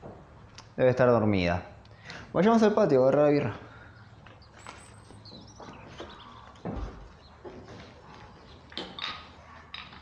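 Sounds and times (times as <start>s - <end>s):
footsteps across a room: 4.2s - 9.0s.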